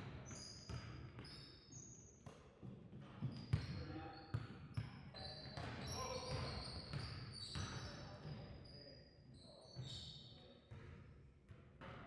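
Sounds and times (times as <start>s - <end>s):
sneakers squeaking on court: 3.1s - 8.8s.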